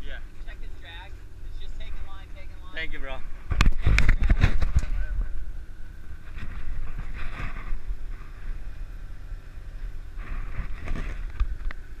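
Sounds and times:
boat engine drone: 0.0 - 12.0
wind on microphone: 3.3 - 12.0.

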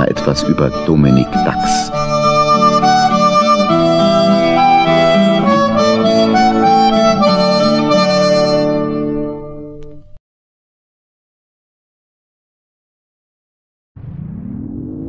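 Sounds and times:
instrumental music with held chords: 0.0 - 10.2.

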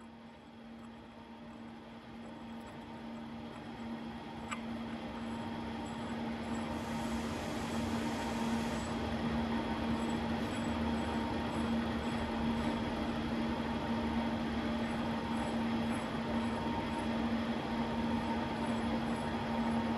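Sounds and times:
machine hum with low tone: 0.0 - 19.9.

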